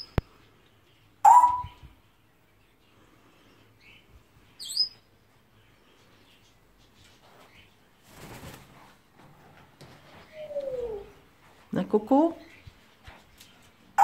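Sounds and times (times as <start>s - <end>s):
faint bird chirps: 0.0s - 7.8s
parrot squawk: 1.2s - 1.7s
wings fluttering: 7.0s - 9.0s.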